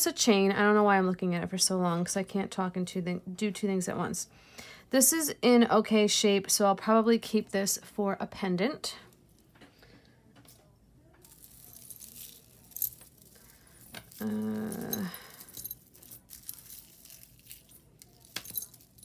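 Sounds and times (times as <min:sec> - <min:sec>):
metal jewelry chains clinking: 0:11.2 - 0:19.0
low hum-like vocal sound: 0:14.1 - 0:15.6.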